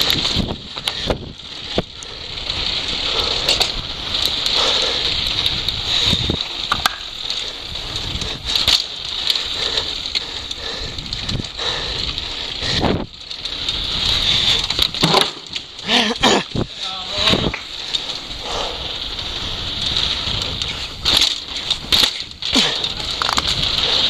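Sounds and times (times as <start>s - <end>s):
wind on microphone: 0.0s - 8.7s, 15.9s - 24.0s
mountain bike rattling over cobblestones: 0.0s - 24.0s
sharp knocks of bike impacts: 6.7s - 7.2s, 14.8s - 15.7s, 21.0s - 23.6s.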